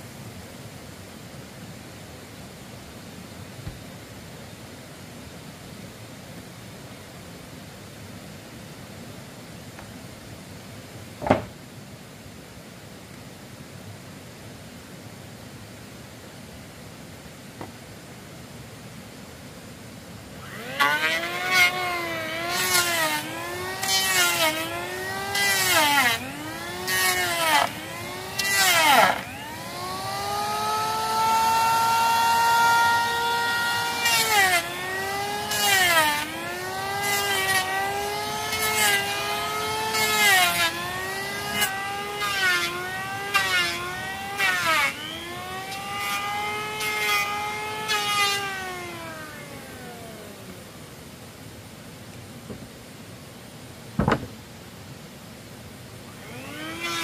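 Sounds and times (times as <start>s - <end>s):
power tool cutting wood: 20.4s - 50.7s, 56.1s - 57.0s.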